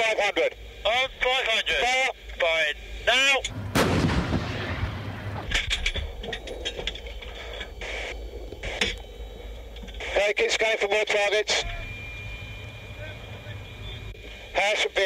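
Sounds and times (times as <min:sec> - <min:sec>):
tank gun blast with rumble: 0:03.5 - 0:06.1.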